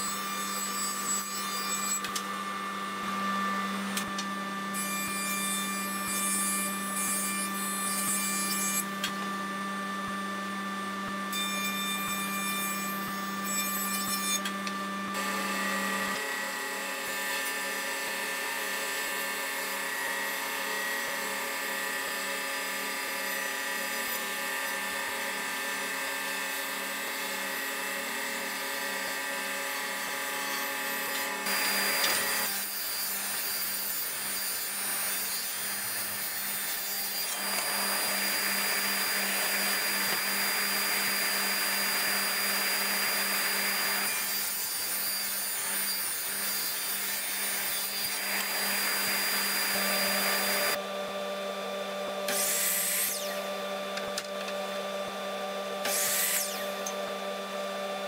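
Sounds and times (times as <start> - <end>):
table saw cutting board: 0.0 - 58.0.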